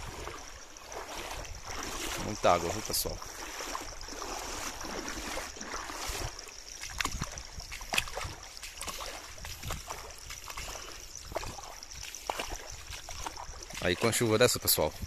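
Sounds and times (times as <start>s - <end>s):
water rushing: 0.0s - 14.9s
footsteps sloshing through water: 0.0s - 15.0s.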